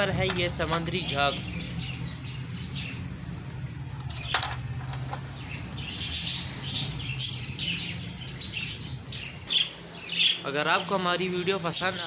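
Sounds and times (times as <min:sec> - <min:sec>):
budgerigars chirping: 0:05.4 - 0:10.9.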